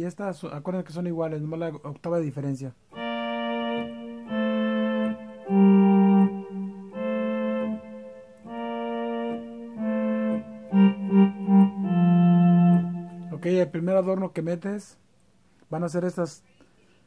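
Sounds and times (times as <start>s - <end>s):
electronic keyboard melody: 2.9s - 14.0s.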